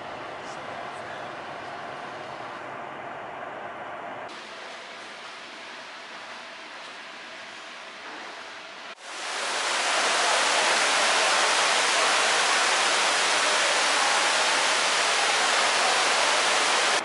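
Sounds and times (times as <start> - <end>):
fountain water cascading: 9.0 - 17.0.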